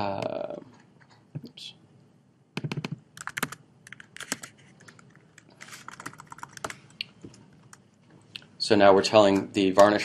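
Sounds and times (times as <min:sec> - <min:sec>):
keyboard keystrokes: 0:05.8 - 0:06.8.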